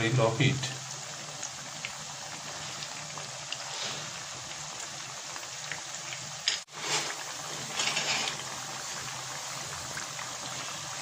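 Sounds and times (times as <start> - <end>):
deep-frying sizzle with pops: 0.0 - 11.0.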